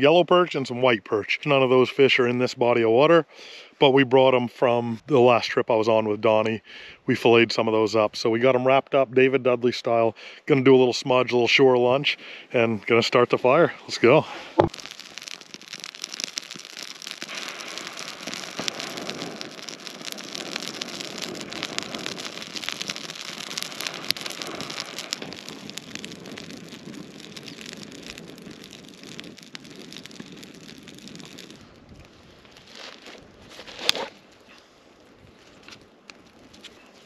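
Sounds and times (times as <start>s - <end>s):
campfire crackling: 0.0s - 37.0s
sharp wood crack: 14.4s - 34.6s.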